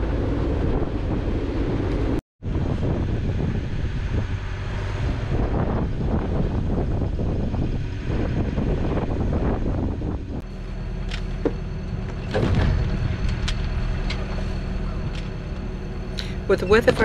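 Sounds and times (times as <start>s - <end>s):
wind noise on microphone: 0.0s - 10.5s
boat engine running: 0.0s - 17.0s.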